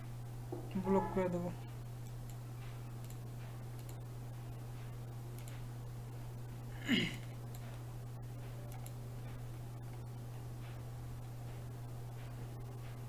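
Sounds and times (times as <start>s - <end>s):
low electrical hum: 0.0s - 13.0s
computer mouse clicks: 3.0s - 4.0s, 5.3s - 5.6s, 8.7s - 9.0s.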